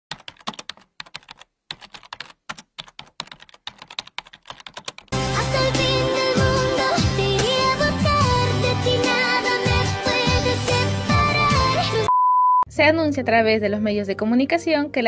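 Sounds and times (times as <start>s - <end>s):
keyboard typing clicks: 0.1s - 5.1s
loud music: 5.1s - 12.1s.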